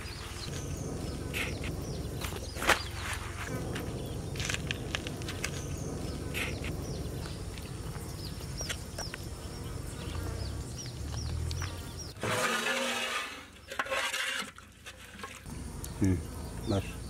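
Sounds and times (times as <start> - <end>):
small birds chirping: 0.0 - 12.2, 15.4 - 17.0
steady low rumble: 0.0 - 12.2.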